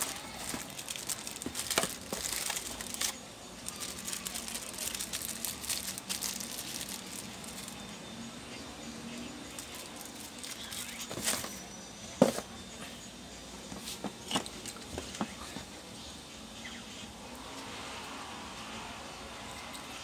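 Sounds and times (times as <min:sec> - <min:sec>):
plastic parts clicking and knocking: 0:00.0 - 0:03.2
plastic bag rustling: 0:00.0 - 0:07.8, 0:09.5 - 0:11.6.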